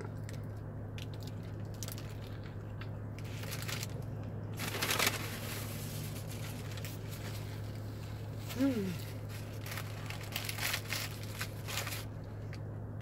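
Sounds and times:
steady low hum: 0:00.0 - 0:13.0
paper wrapper crinkling: 0:01.0 - 0:02.5, 0:03.2 - 0:04.0, 0:04.6 - 0:07.7, 0:08.5 - 0:12.2.

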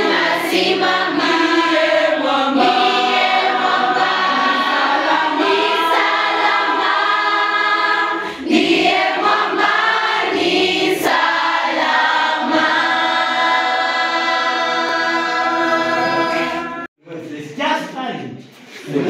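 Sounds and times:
choir singing: 0:00.0 - 0:16.9.

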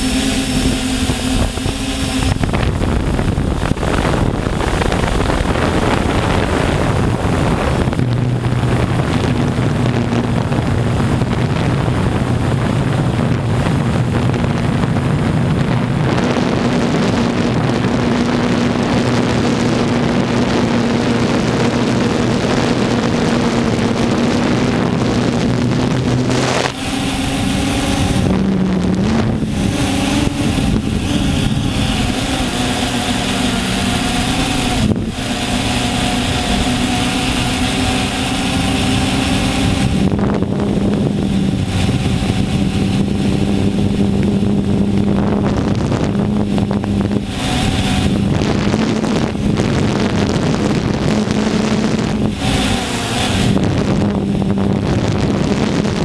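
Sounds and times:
drone propellers humming: 0:00.0 - 0:56.0
wind noise on microphone: 0:00.0 - 0:56.0.

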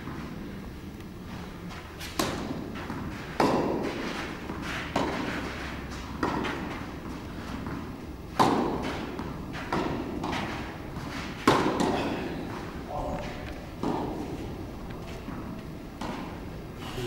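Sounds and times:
tennis racket hitting ball: 0:02.0 - 0:12.8, 0:13.8 - 0:14.6, 0:15.2 - 0:16.6.

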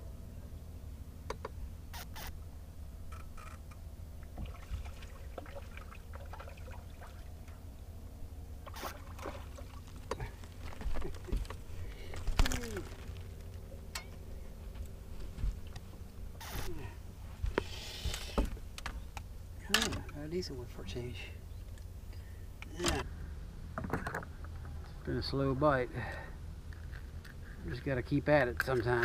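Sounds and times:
water lapping at a boat: 0:04.2 - 0:11.8
fish splashing: 0:04.3 - 0:07.6, 0:08.6 - 0:10.1.

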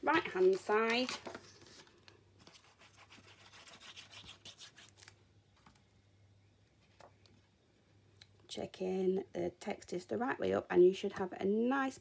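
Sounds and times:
low steady hum: 0:00.0 - 0:12.0
paper scratching and rubbing: 0:02.4 - 0:05.1.

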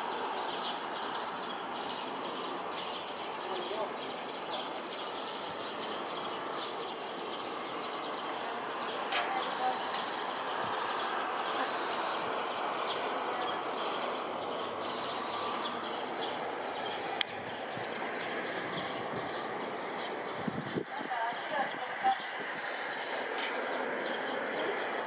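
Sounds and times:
outdoor rumble and hiss: 0:00.0 - 0:25.0.

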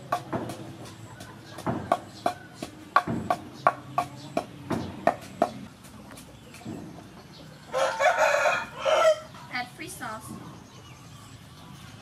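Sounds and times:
pestle pounding in wooden mortar: 0:00.0 - 0:07.3.

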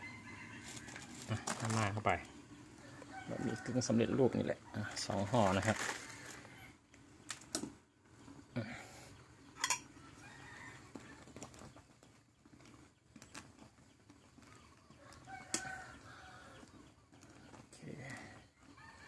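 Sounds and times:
metal tongs clinking on pot: 0:09.6 - 0:09.9.

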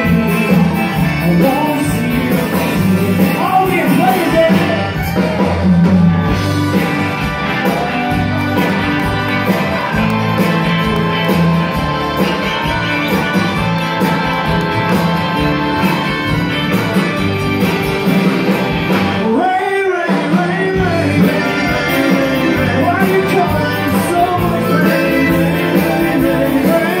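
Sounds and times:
person singing: 0:00.0 - 0:06.3, 0:19.1 - 0:27.0
live band playing: 0:00.0 - 0:27.0.

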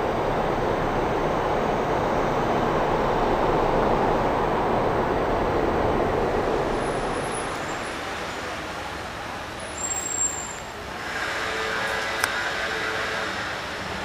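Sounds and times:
passing vehicle: 0:00.0 - 0:09.8.

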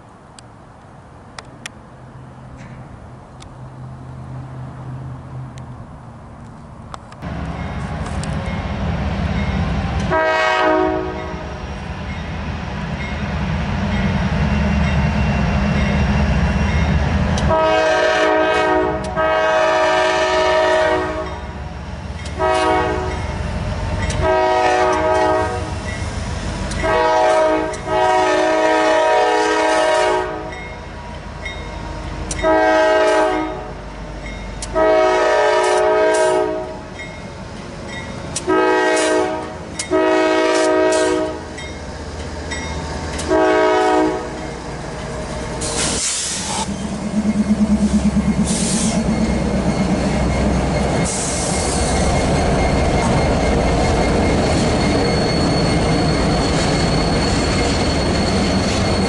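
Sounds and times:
diesel locomotive rumble: 0:00.0 - 0:59.0
locomotive air horn blasts: 0:10.1 - 0:11.5, 0:17.5 - 0:21.5, 0:22.4 - 0:23.2, 0:24.2 - 0:25.8, 0:26.7 - 0:30.5, 0:32.4 - 0:33.8, 0:34.7 - 0:36.8, 0:38.4 - 0:41.5, 0:43.2 - 0:44.3.

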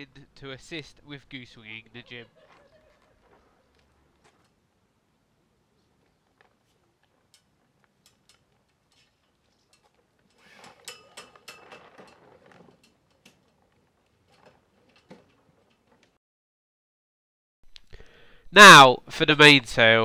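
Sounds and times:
rigging clicking and tapping: 0:06.0 - 0:16.2
metal fittings clinking: 0:07.2 - 0:16.2.

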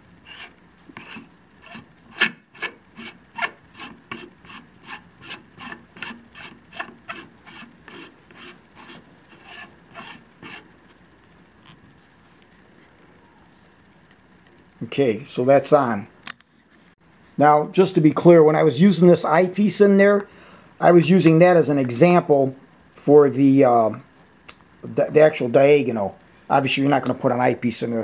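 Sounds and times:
threads rasping while screwing: 0:00.0 - 0:11.0.

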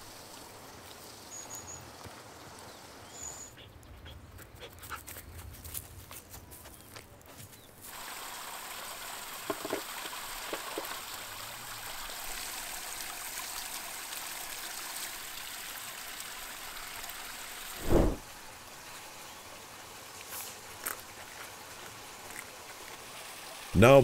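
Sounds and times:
flowing water: 0:07.9 - 0:24.0.

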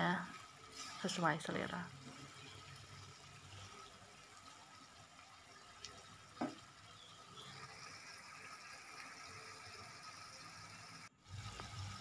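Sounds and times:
food simmering with sizzling hiss: 0:00.0 - 0:12.0
knock: 0:06.4 - 0:06.6.

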